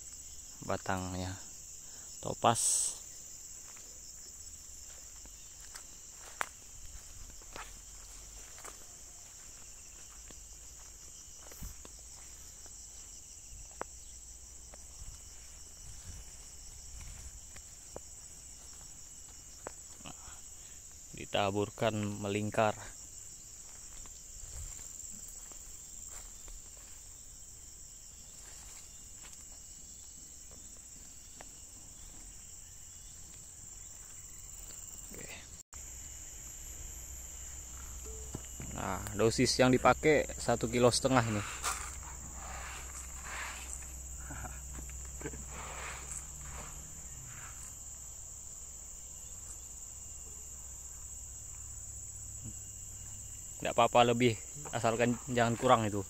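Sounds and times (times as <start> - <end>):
high-pitched insect chorus: 0.0 - 56.0
ticks and rustles on dry ground: 28.3 - 48.0.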